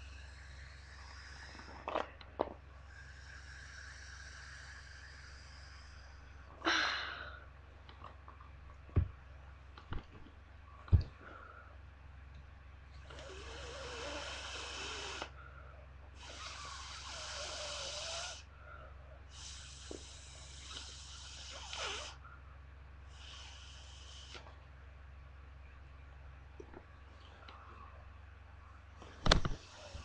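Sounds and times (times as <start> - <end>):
breaths blown into balloon: 2.9 - 7.3, 13.1 - 15.4, 16.2 - 18.5, 19.3 - 22.2.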